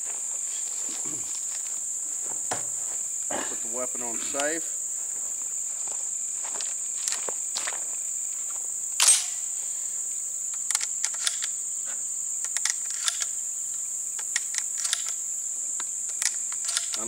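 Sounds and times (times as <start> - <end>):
high insect chorus: 0.0 - 17.0
metallic shotgun clicks: 9.0 - 9.4, 10.5 - 11.6, 12.4 - 13.4, 14.2 - 15.2, 16.1 - 17.0.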